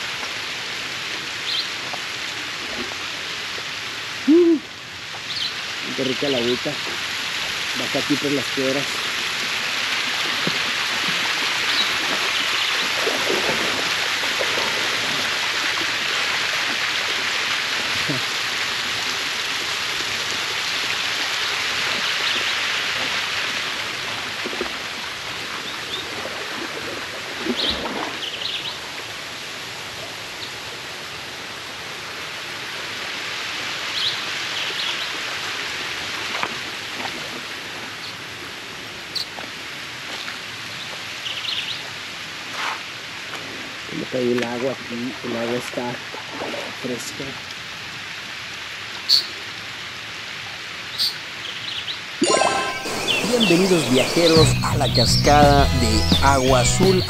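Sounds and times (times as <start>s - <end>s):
waterfall rushing: 0.0s - 24.4s, 52.2s - 57.0s.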